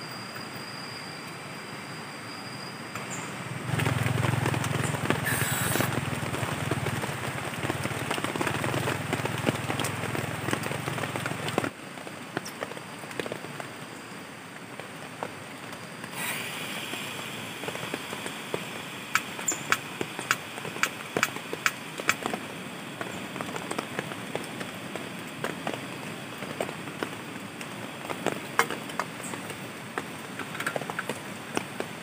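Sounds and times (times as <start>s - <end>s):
gas stove hissing: 5.2s - 6.4s, 16.1s - 24.1s.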